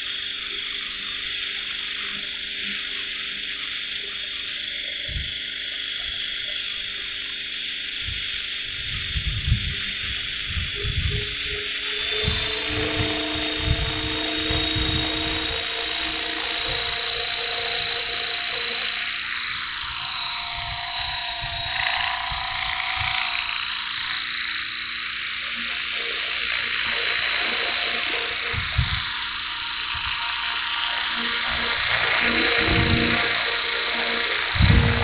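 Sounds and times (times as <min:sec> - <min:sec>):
rc helicopter motor whine: 0:00.0 - 0:35.0
rotor whoosh: 0:10.1 - 0:23.8, 0:25.5 - 0:35.0.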